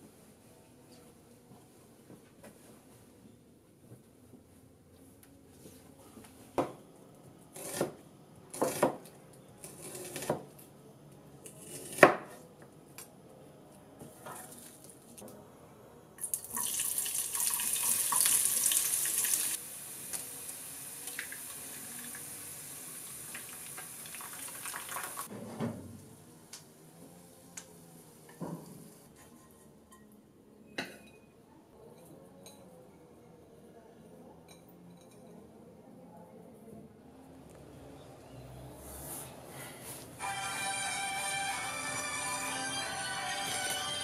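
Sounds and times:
onions sizzling in oil: 16.6s - 25.3s.

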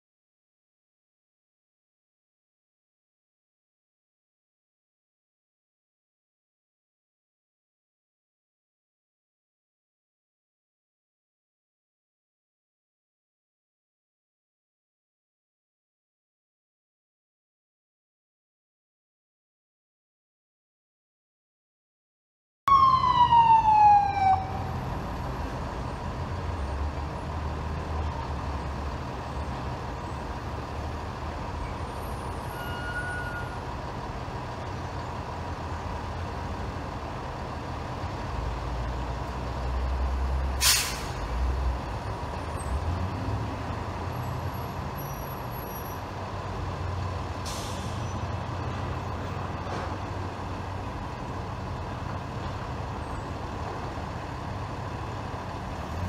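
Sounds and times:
truck engines rumbling: 22.7s - 56.0s
air-brake hisses: 40.6s - 41.2s, 47.4s - 48.2s.

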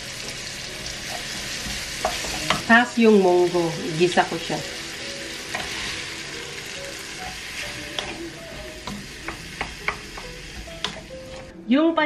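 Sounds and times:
beans sizzling in a wok: 0.0s - 11.5s
spatula tapping a pan: 1.1s - 2.7s, 7.9s - 11.1s.

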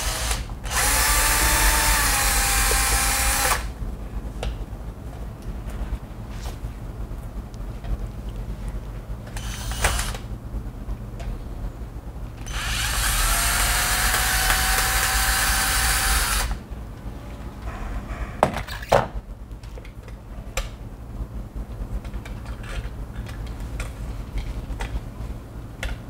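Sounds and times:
cordless drill running: 0.0s - 3.7s, 9.4s - 10.3s, 12.4s - 16.6s.

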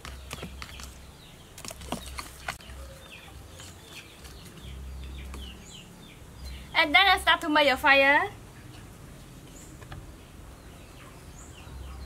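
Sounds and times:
utensil stirring batter in bowl: 0.0s - 4.6s
birds chirping: 0.0s - 12.0s.

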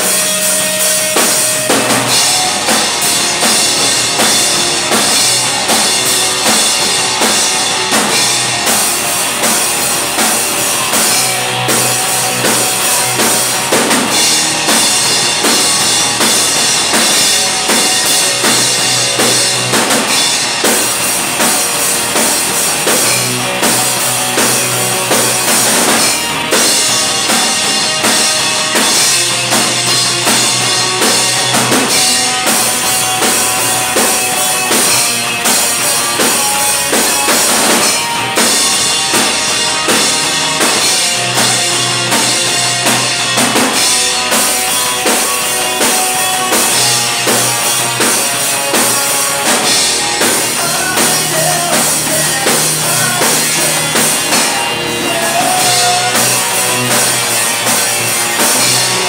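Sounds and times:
drum kit: 0.0s - 59.0s
electric guitars: 0.0s - 59.0s.

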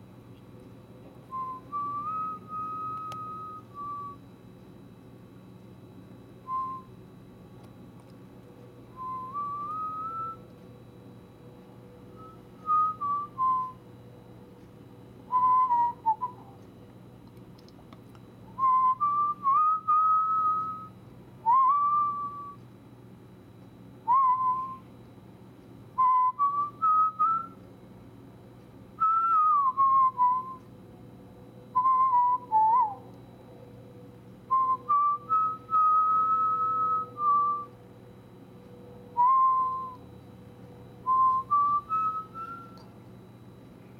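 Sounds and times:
faint low hum: 0.0s - 43.9s
person whistling a tune: 1.3s - 4.2s, 6.5s - 6.9s, 8.9s - 10.4s, 12.2s - 13.8s, 15.3s - 16.6s, 18.6s - 22.6s, 24.1s - 24.9s, 26.0s - 27.6s, 29.0s - 30.7s, 31.8s - 33.1s, 34.5s - 37.8s, 39.2s - 40.1s, 41.0s - 42.9s.

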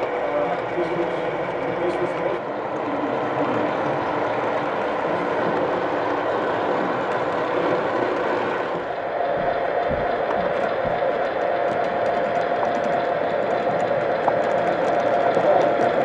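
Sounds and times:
model train running on track: 0.0s - 16.0s
steady whine: 0.0s - 16.0s.

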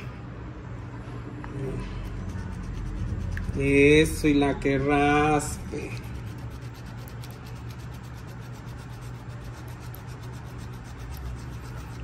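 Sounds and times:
fingers scraping paste in bowl: 2.0s - 4.2s, 5.3s - 12.0s.

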